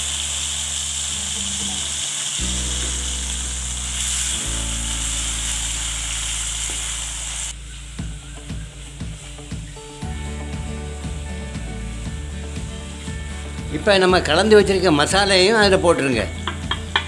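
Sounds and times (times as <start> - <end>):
onions sizzling in oil: 0.0 - 14.4
background music with held notes: 2.4 - 17.0
wooden spatula knocking pan: 16.4 - 17.0.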